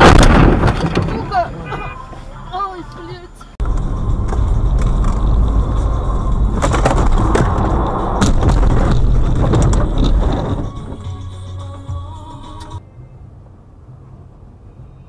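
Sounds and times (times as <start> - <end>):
car rumbling through snow: 3.6 - 11.3.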